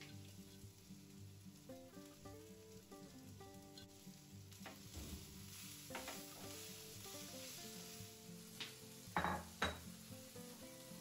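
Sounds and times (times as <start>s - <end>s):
food sizzling in a pan: 0.0s - 11.0s
soft background music: 0.0s - 11.0s.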